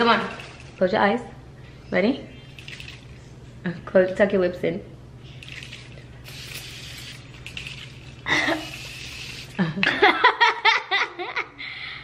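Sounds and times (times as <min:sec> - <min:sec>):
aerosol mist spray hissing: 0:06.2 - 0:07.3, 0:08.5 - 0:09.6.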